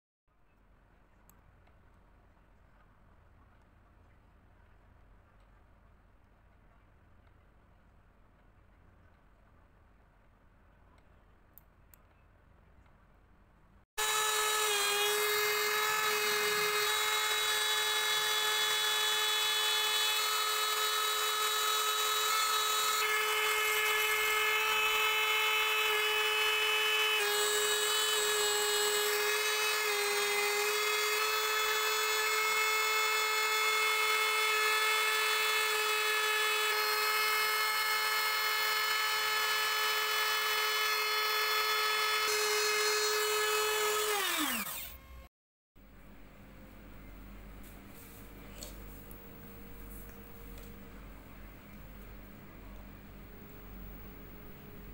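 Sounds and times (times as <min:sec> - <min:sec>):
high-pitched spindle whine: 0:30.9 - 0:45.3.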